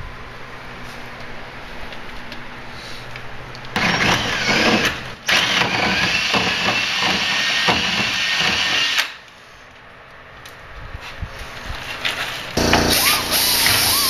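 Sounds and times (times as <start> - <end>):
power drill whining through steel: 3.8 - 9.2, 12.6 - 14.0.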